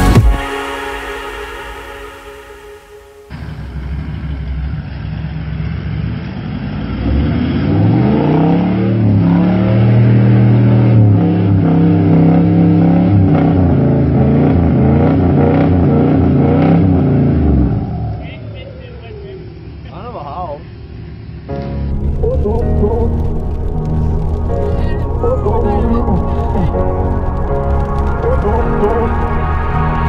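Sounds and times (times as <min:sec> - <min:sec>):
engine revving hard: 0:03.4 - 0:19.8.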